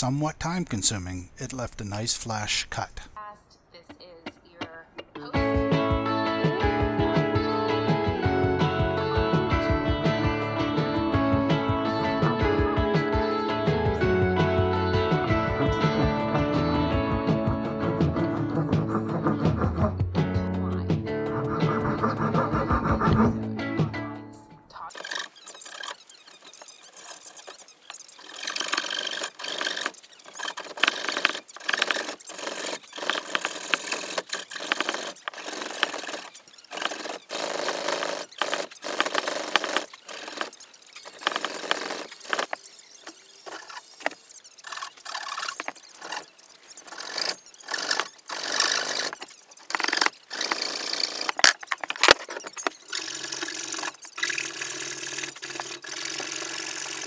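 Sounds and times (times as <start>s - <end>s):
pull saw cutting wood: 17.9s - 20.0s, 21.2s - 23.5s, 24.8s - 57.0s
sharp ticks: 24.9s - 57.0s.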